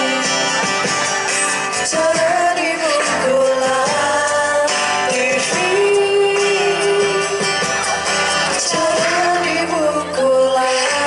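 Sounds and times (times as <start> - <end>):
acoustic guitar: 0.0 - 11.0
person singing long notes: 1.8 - 7.6, 8.5 - 11.0.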